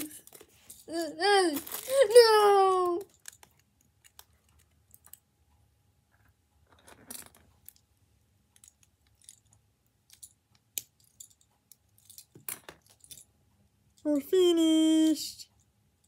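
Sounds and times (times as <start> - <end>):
toy bricks clicking: 0.0 - 5.3.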